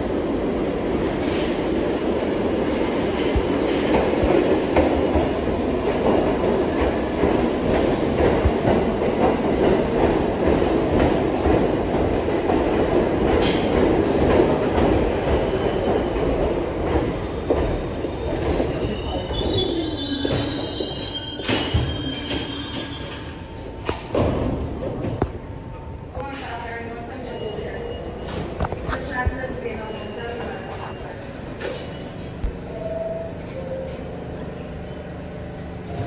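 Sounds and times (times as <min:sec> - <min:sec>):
subway train rumbling on rails: 0:00.0 - 0:36.0
high wheel squeal: 0:17.6 - 0:23.4.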